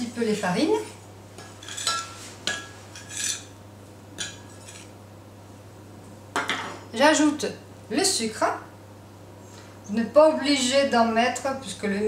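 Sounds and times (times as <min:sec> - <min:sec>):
spoon scraping glass bowl: 0:04.5 - 0:04.9.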